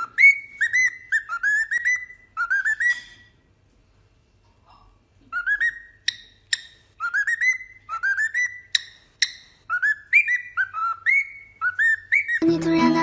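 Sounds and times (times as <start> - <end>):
cockatiel whistling: 0.0 - 3.2, 5.3 - 12.4
sharp high bird chirps: 0.0 - 3.4, 5.4 - 12.4.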